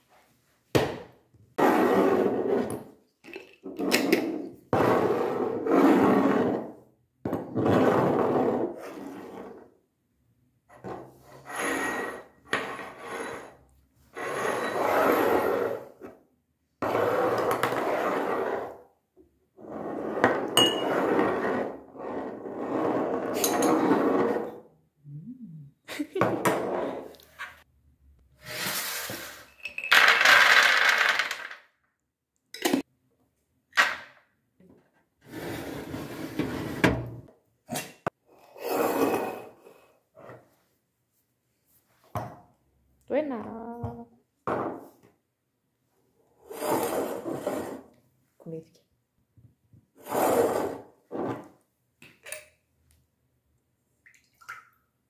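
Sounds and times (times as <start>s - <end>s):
glass and ceramic clinking: 20.6s - 20.9s.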